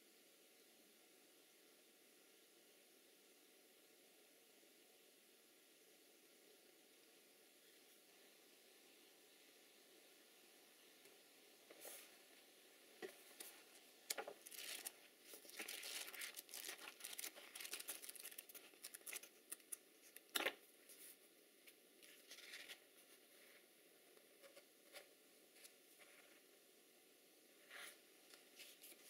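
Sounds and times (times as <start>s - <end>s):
paper pages rustling: 13.4s - 21.2s, 22.0s - 22.8s.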